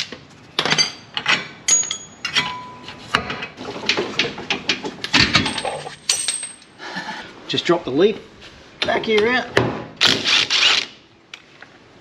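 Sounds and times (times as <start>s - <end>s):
tools clanking on metal: 0.6s - 6.7s
metallic ring: 1.7s - 3.0s.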